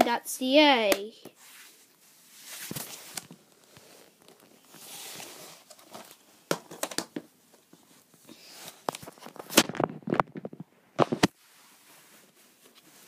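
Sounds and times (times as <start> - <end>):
plastic cases rustling: 2.5 - 11.4.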